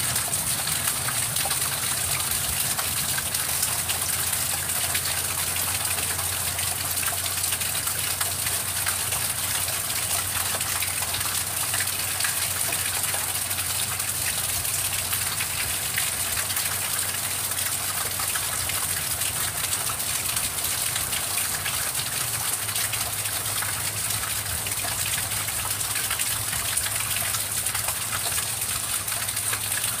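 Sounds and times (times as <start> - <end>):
heavy rain pouring: 0.0 - 17.5.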